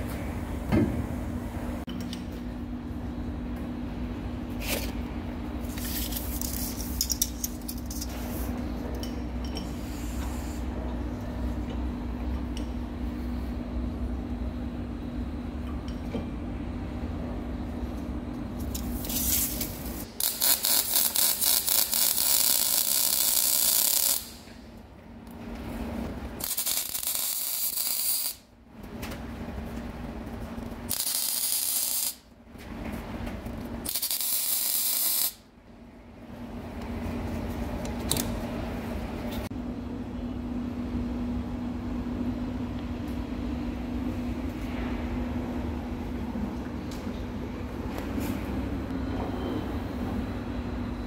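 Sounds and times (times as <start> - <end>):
welding arc crackling and hissing: 18.8 - 24.5, 26.4 - 28.5, 30.8 - 32.3, 33.9 - 35.4.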